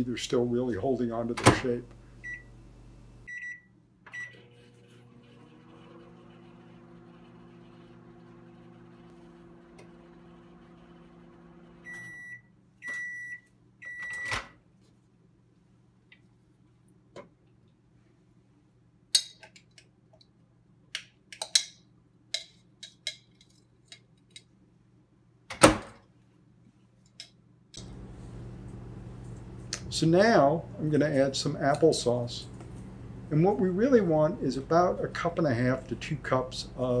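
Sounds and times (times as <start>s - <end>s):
microwave oven humming: 1.6s - 14.0s, 27.8s - 37.0s
microwave beeps: 2.2s - 2.6s, 3.3s - 4.7s, 11.8s - 14.4s.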